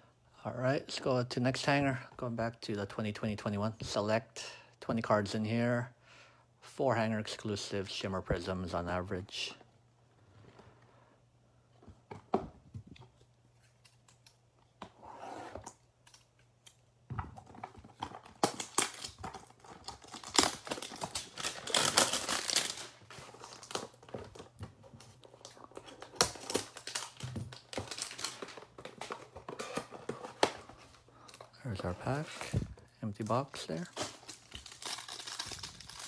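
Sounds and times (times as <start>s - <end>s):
wrapper crinkling and rustling: 17.8s - 36.0s.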